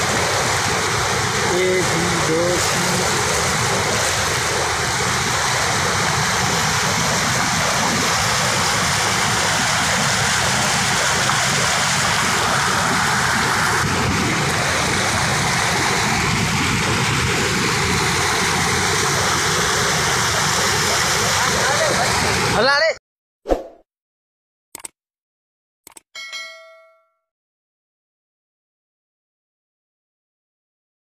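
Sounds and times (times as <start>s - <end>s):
floodwater rushing: 0.0s - 22.7s.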